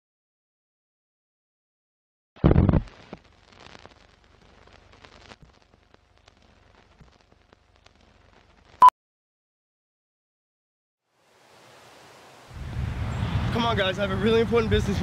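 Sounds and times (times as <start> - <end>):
old film crackle: 2.4 - 8.8
light hiss: 2.8 - 8.8.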